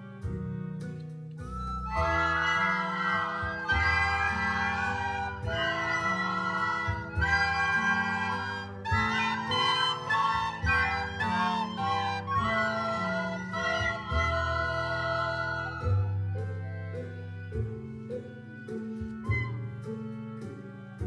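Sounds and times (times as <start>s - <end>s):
piano and guitar accompaniment: 0.0s - 21.0s
children playing recorders: 1.4s - 16.6s, 19.2s - 19.7s.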